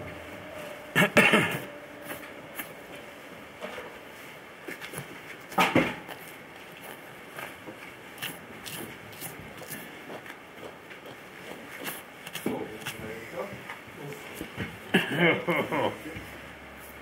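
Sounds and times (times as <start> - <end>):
knife scraping while skinning: 8.1 - 10.4, 11.4 - 13.1.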